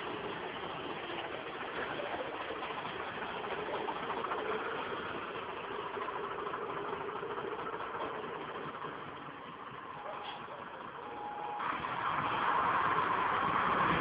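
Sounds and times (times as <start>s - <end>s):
fire truck engine running: 0.0s - 14.0s.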